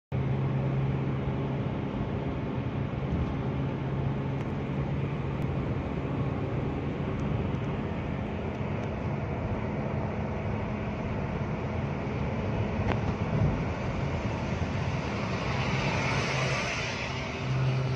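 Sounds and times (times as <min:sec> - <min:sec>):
car engine at high revs: 0:00.2 - 0:17.9
tyre and wind noise: 0:12.4 - 0:16.8.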